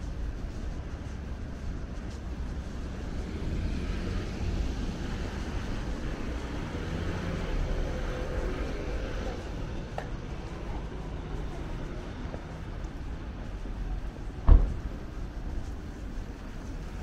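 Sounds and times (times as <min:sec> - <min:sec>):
passing traffic rumble: 0:00.0 - 0:17.0.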